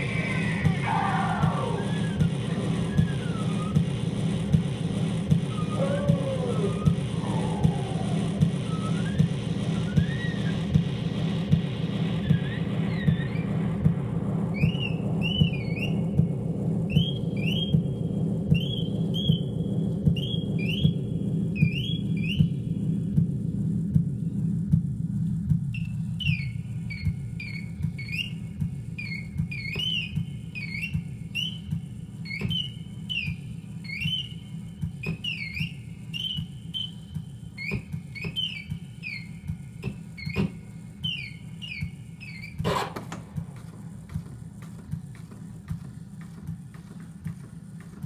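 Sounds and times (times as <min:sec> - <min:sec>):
turntable rumbling pulse with clicks: 0:00.0 - 0:48.0.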